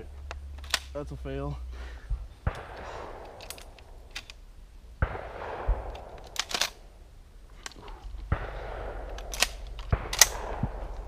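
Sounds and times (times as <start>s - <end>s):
shotgun shot echoing: 2.4s - 4.0s, 5.0s - 6.8s, 8.2s - 11.0s
shotgun action clicks: 2.5s - 4.4s, 5.1s - 6.8s, 7.6s - 11.0s.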